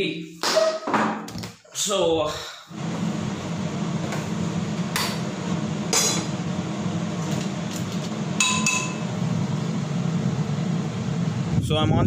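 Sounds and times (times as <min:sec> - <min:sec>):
steady low hum: 0:02.7 - 0:11.7
metal spoon clinking on pan: 0:08.4 - 0:09.0.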